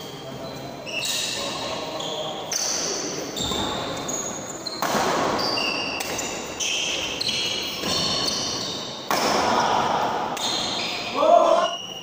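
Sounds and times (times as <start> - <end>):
sneakers squeaking on court: 0.0 - 9.4, 10.4 - 12.0
racket hitting shuttlecock: 4.7 - 6.4, 9.1 - 9.6.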